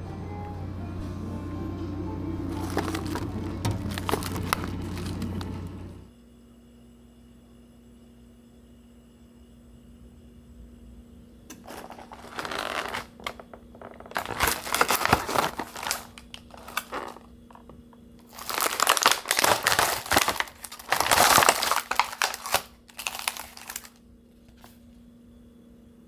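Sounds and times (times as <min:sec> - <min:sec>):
plastic food pack crinkling: 0:02.5 - 0:05.7, 0:11.5 - 0:24.8.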